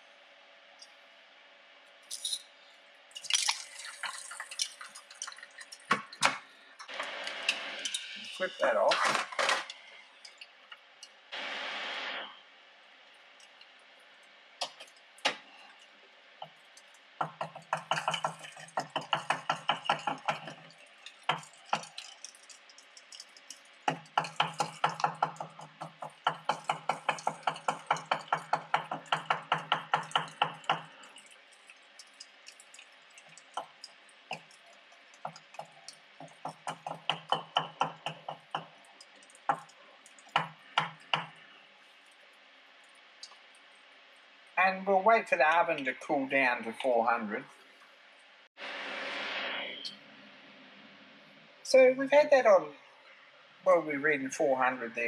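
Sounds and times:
metal part clinking against tin: 2.1 - 2.5.

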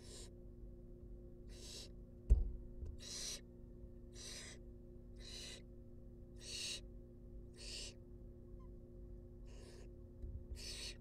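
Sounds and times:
owl nestlings hissing: 0.0 - 0.4, 1.5 - 2.0, 3.0 - 3.4, 4.1 - 4.6, 5.2 - 5.7, 6.4 - 6.9, 7.5 - 8.0, 9.5 - 9.9, 10.6 - 11.0.

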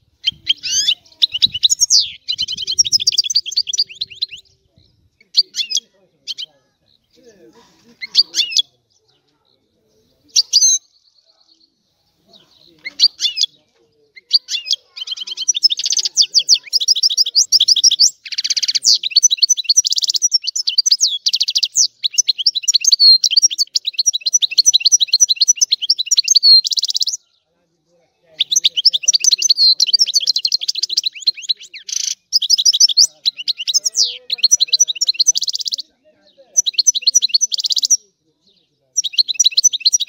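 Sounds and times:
goldfinch singing: 0.0 - 9.3, 9.9 - 27.3, 28.3 - 40.0.

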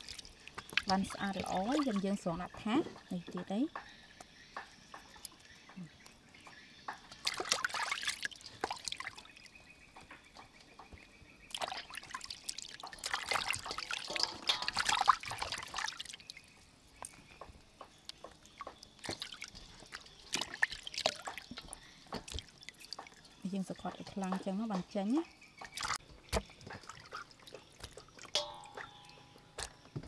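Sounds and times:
water splashing in a metal bowl: 0.0 - 6.1, 6.9 - 10.5, 11.5 - 17.5, 18.1 - 30.0
water dripping: 0.0 - 30.0.

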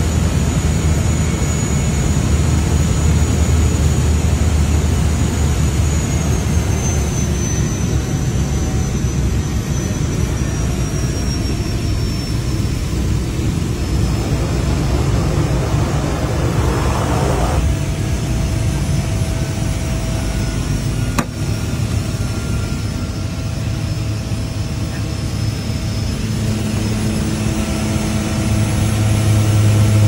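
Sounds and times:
propeller engine running: 0.0 - 30.0.

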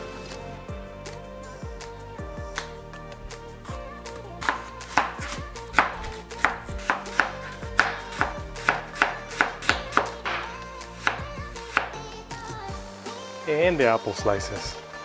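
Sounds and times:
background music: 0.0 - 15.0
knife knocking on plastic board: 4.4 - 10.5
knife slicing apple: 4.4 - 12.0.

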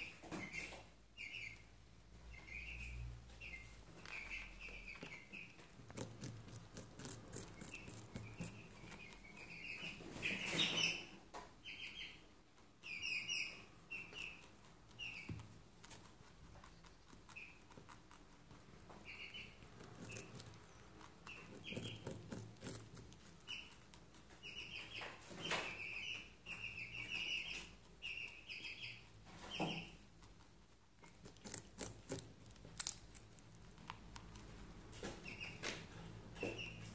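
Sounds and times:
rabbit crunching a carrot: 3.6 - 11.0, 12.8 - 36.9.

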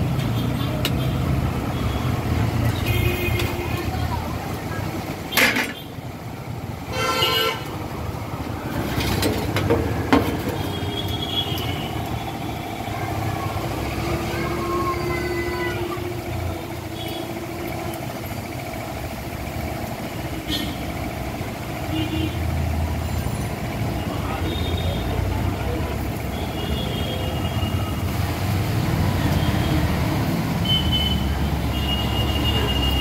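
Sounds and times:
low rumble of traffic: 0.0 - 33.0
faint voices: 3.3 - 5.3, 11.9 - 19.0.

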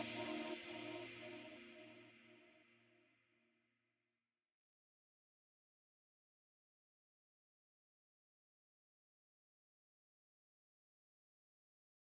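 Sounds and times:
background music: 0.0 - 2.0.

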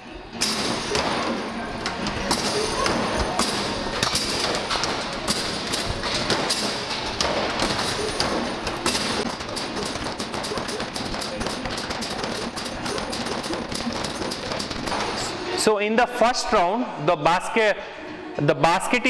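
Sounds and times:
steady noisy din: 0.0 - 15.8
basketballs hitting backboard and rim: 0.3 - 15.4.

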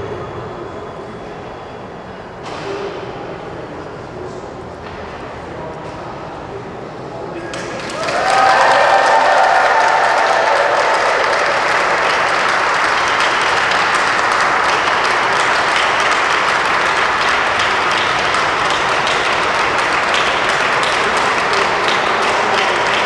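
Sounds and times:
crowd applauding: 7.5 - 23.0.

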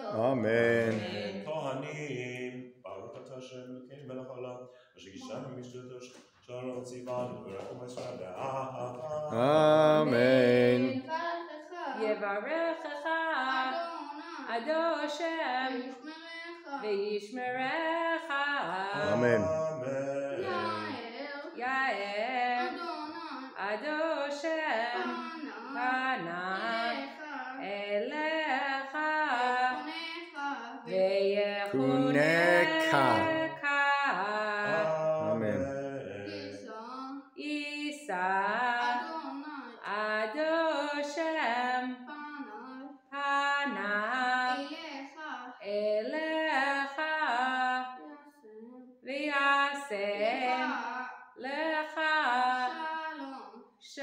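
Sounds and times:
boy chanting prayers: 0.0 - 2.5, 5.1 - 11.2, 18.8 - 21.2, 24.8 - 27.2, 31.6 - 33.6, 34.5 - 37.3, 50.3 - 50.9.

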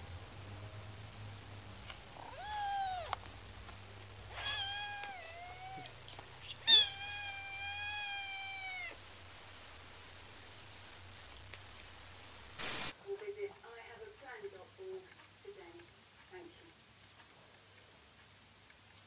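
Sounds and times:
kitten meowing: 2.2 - 3.2, 4.3 - 9.0.

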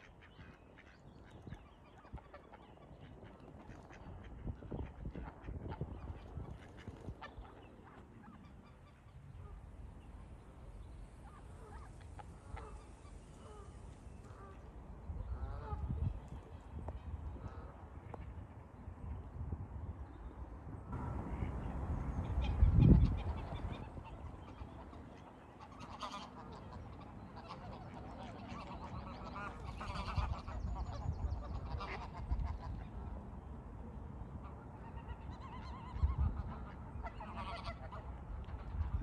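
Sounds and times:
geese honking and cackling: 11.2 - 16.1, 21.2 - 32.9, 34.4 - 39.0.

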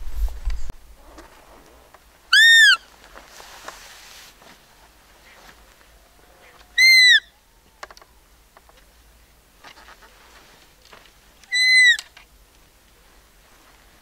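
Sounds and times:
deer call squeaks: 2.3 - 2.9, 6.7 - 7.3, 11.4 - 12.2.

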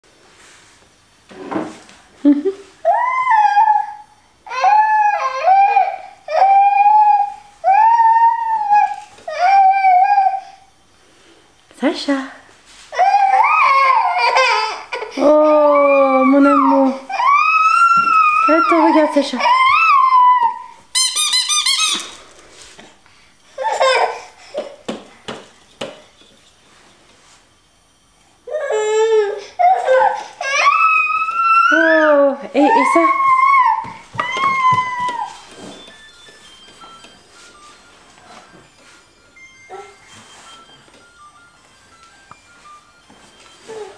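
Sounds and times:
baby whining cries: 2.8 - 10.7, 13.0 - 21.0, 23.6 - 24.6, 28.5 - 35.5, 39.7 - 40.1, 43.7 - 43.9
squeaky toy chirps: 20.9 - 22.2.

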